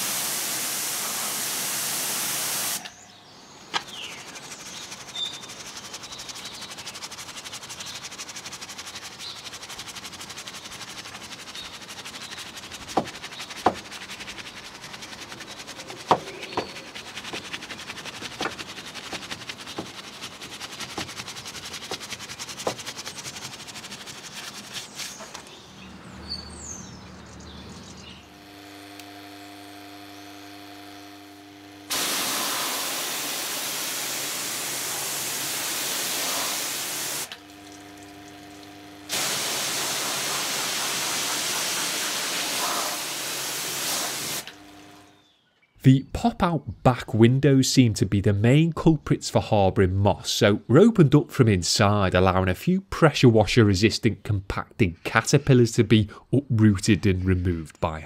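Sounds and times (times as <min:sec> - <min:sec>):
pressure washer spray hissing: 0:00.0 - 0:03.0, 0:04.1 - 0:25.4, 0:31.9 - 0:45.2
brush scrubbing rubber: 0:03.8 - 0:25.6, 0:31.9 - 0:45.1.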